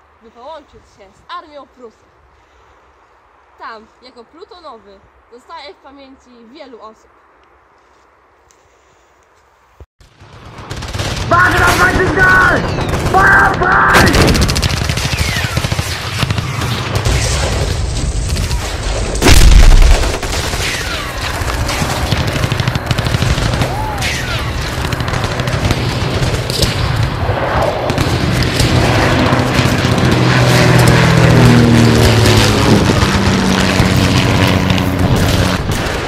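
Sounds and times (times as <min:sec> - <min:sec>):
machine-gun fire: 0:10.0 - 0:36.0
loud explosion: 0:16.8 - 0:36.0.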